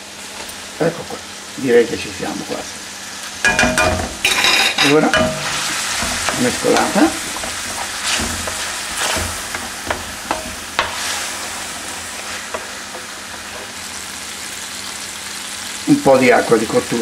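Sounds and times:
pasta sizzling in a pan: 0.0 - 17.0
wooden spoon scraping a pan: 5.1 - 14.0.

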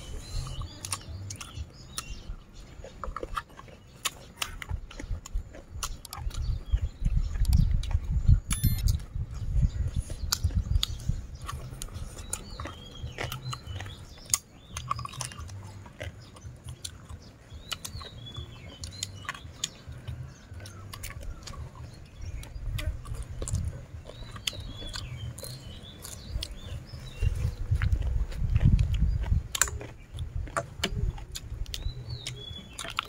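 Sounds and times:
birds chirping: 0.0 - 33.0
people chewing crunchy food: 0.0 - 33.0.

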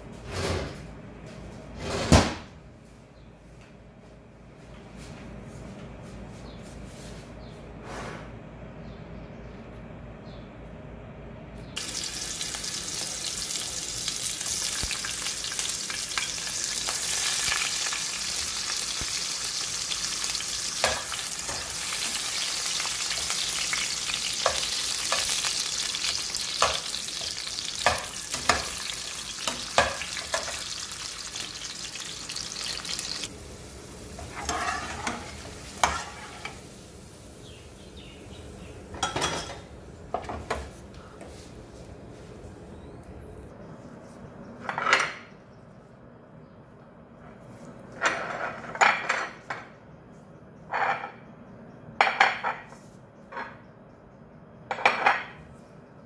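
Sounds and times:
sausages sizzling in oil: 11.8 - 38.1.

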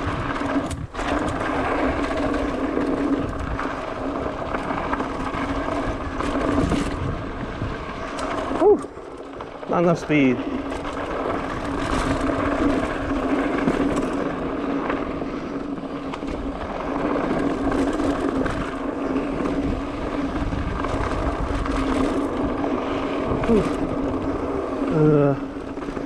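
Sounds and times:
wind on microphone: 0.0 - 9.0, 16.4 - 25.6
bike humming: 0.0 - 26.0.

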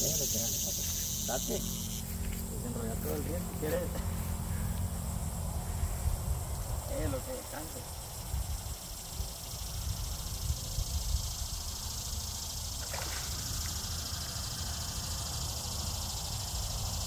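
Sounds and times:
steady high hiss: 0.0 - 17.0
wind rumbling on microphone: 2.2 - 13.6.

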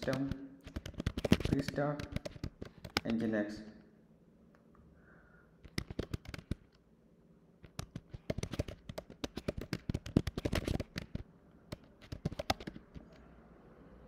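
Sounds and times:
computer keyboard typing: 0.0 - 3.3, 5.6 - 6.8, 7.6 - 13.2.

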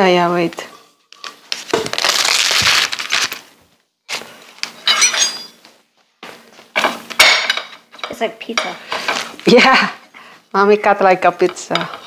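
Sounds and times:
dishes scraping and knocking: 4.7 - 5.6, 6.7 - 9.4.

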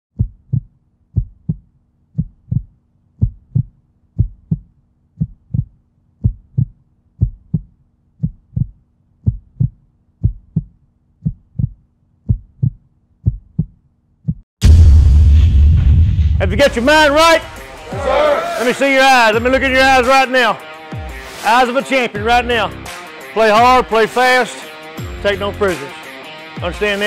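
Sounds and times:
heartbeat double thumps: 0.1 - 18.1.

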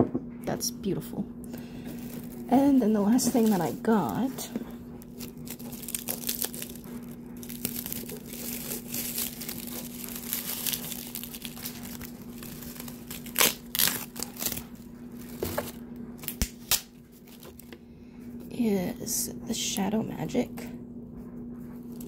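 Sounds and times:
packaging crinkling and rustling: 1.6 - 17.8.

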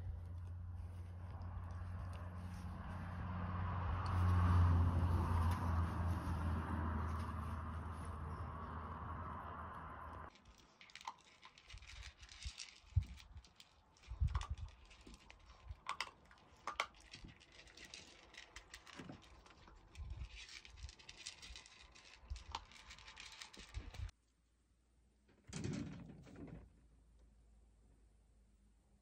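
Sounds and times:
pets eating from plastic bowl: 10.3 - 24.1.

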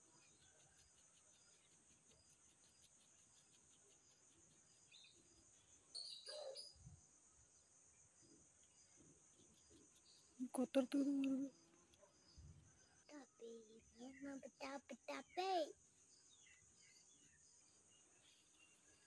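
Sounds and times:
faint regular ticks: 0.0 - 6.1, 8.4 - 13.9.

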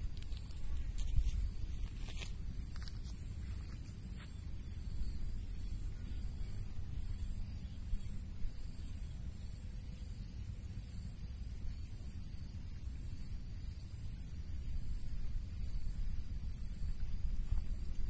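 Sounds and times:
wind rumble on microphone: 0.0 - 8.9, 14.3 - 18.0
faint high whine: 0.0 - 18.0.

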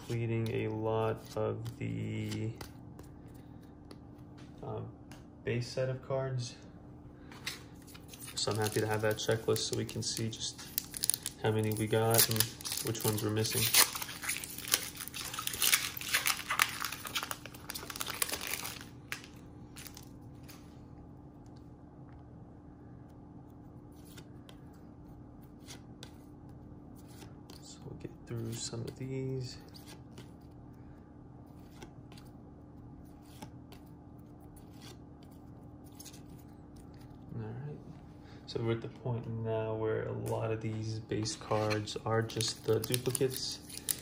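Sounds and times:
foil wrapper crinkling: 8.3 - 20.1, 42.3 - 44.0.

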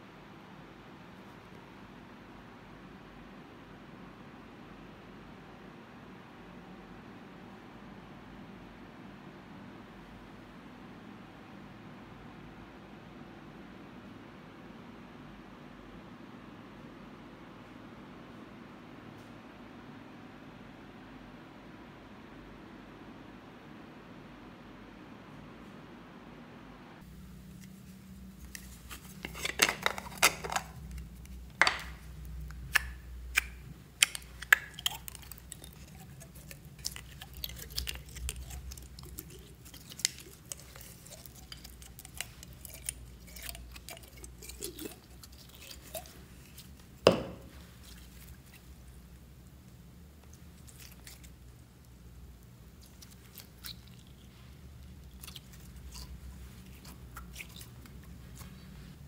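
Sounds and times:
slime crackling and squishing: 27.8 - 59.0.

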